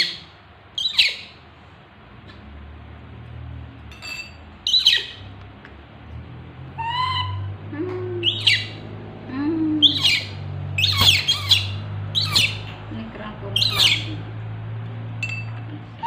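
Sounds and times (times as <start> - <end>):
baby monkeys screaming: 0.8 - 1.4, 4.7 - 5.2, 6.8 - 7.6, 8.2 - 8.8, 9.8 - 12.7, 13.6 - 14.1.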